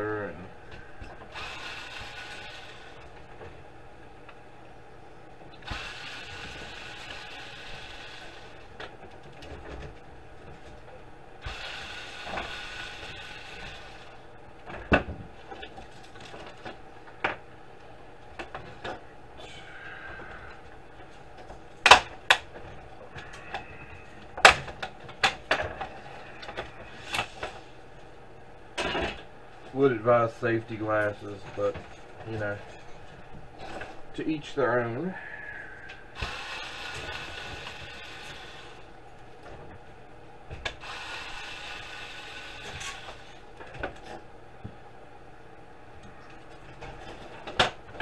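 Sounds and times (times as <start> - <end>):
casing parts clicking and snapping: 20.2 - 27.6.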